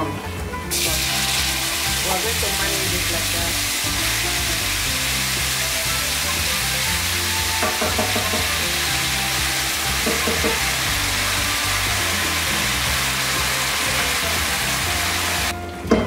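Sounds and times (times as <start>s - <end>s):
sauce sizzling in hot oil: 0.7s - 15.6s.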